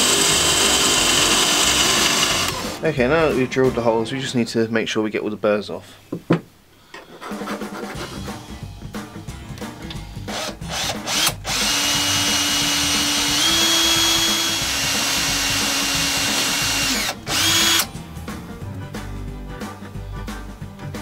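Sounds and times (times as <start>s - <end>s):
power drill motor whining: 0.0s - 2.8s, 10.3s - 17.9s.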